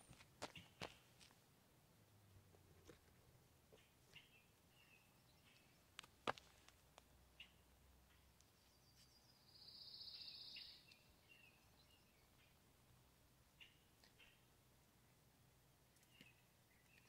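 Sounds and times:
high bird chirps: 8.8s - 12.1s.

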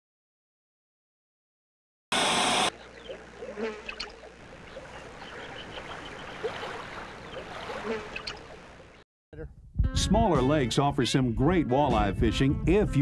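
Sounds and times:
insects buzzing: 2.2s - 9.0s
short chirps and croaks: 2.7s - 9.0s
gently moving water: 2.8s - 9.0s.

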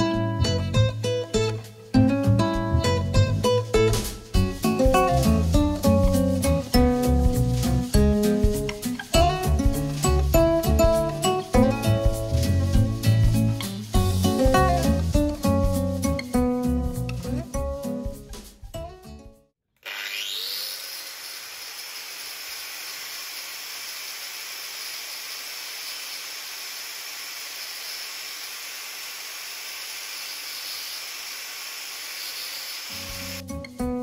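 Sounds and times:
angle grinder whining: 19.8s - 33.4s.

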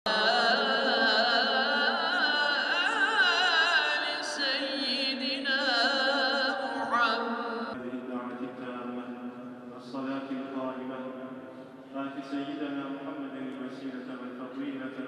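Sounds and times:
man chanting religious recitation: 11.9s - 15.0s.

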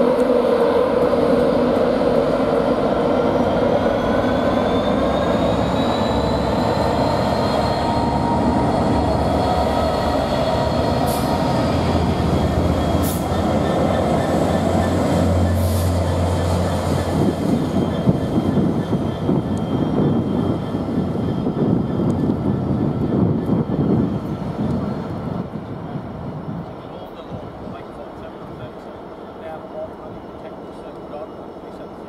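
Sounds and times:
diesel locomotive engine drone: 0.0s - 32.0s
train wheels rumbling and clattering: 0.0s - 32.0s
wheel squeals: 4.1s - 22.1s.

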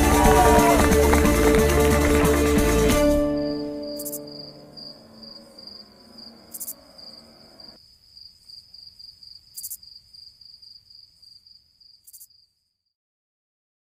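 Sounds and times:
plucked-string folk tune: 0.0s - 4.8s
crickets chirping: 3.3s - 12.9s.

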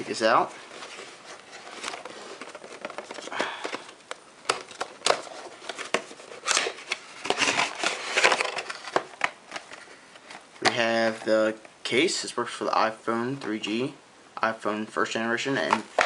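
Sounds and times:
cardboard scraping and rustling: 0.2s - 10.4s.

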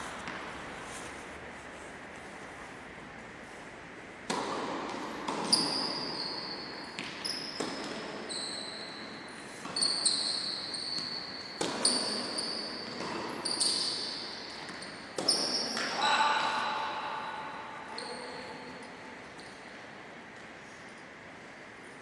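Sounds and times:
tennis ball bouncing: 0.2s - 0.6s, 4.2s - 5.8s, 6.9s - 8.1s
tennis racket striking ball: 4.2s - 5.8s.

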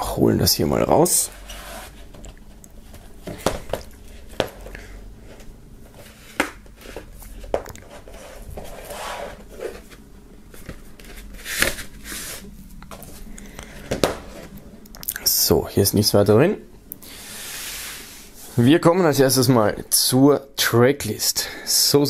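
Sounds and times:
cardboard record jacket sliding: 1.3s - 2.1s, 8.0s - 10.0s, 11.0s - 12.5s, 17.2s - 18.7s.

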